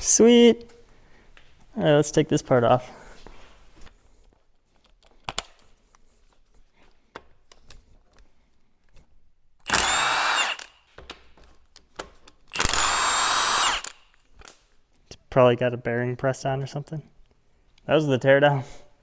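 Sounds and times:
impact wrench loosening bolts: 9.6s - 10.9s, 12.2s - 14.6s.

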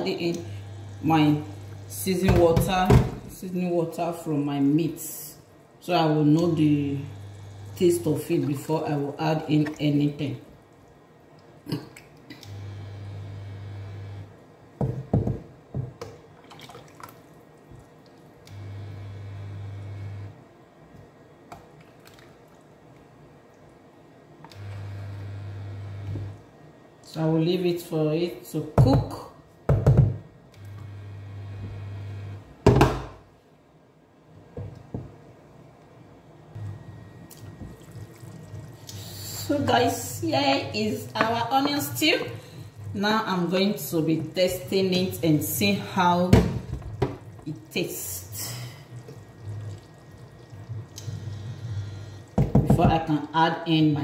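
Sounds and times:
low steady hum: 0.0s - 14.8s, 30.5s - 54.0s
liquid pouring into pot: 16.3s - 18.3s, 37.3s - 39.5s, 46.6s - 47.8s, 48.5s - 52.6s
light splashes: 16.3s - 18.4s, 48.8s - 51.4s.

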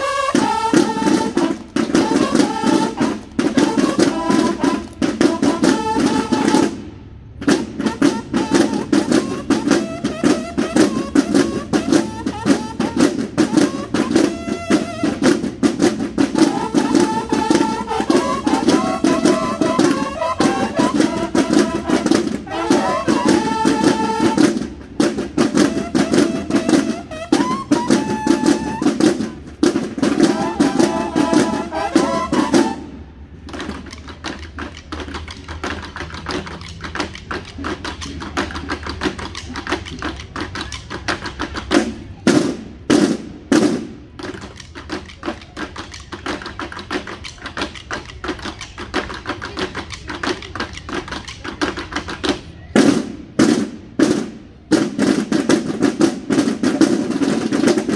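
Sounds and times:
bugles playing held notes: 0.0s - 6.8s, 7.4s - 33.0s
snare drums: 0.0s - 57.9s.

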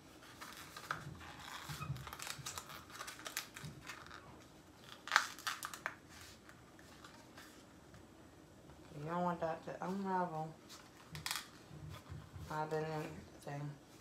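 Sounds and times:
cardboard crinkling and crackling: 0.0s - 8.1s.

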